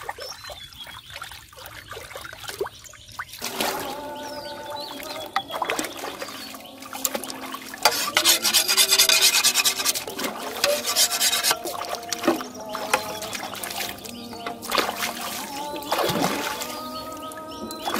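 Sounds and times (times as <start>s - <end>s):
water splashing: 0.0s - 17.9s
hoe scraping through mud: 7.8s - 12.4s.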